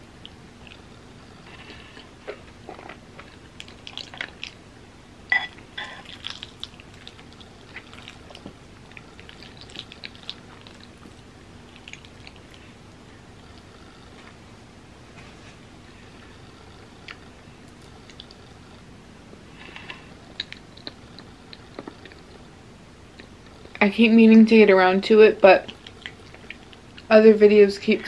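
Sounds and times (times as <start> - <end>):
chewing and mouth noises: 0.1 - 4.6, 5.8 - 14.2, 16.6 - 18.8, 19.8 - 22.5, 25.6 - 27.1.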